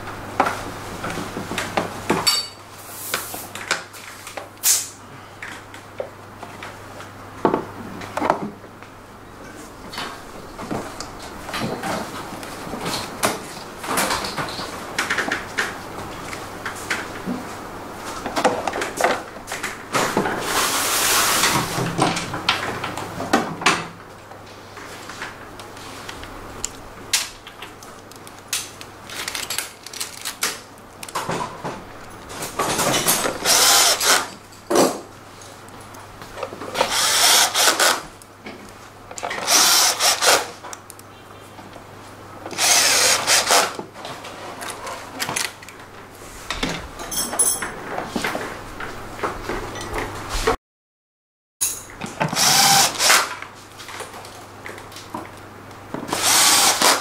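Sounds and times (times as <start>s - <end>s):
cordless drill driving bolts: 33.2s - 34.3s, 36.8s - 38.0s, 39.4s - 40.5s, 42.6s - 43.8s, 52.2s - 53.3s, 56.1s - 57.0s.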